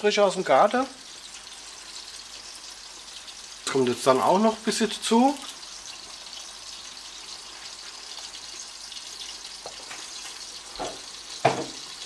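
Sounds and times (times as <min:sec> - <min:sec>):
sauce sizzling in a frying pan: 0:00.0 - 0:12.0
wooden spoon knocking: 0:10.8 - 0:11.8.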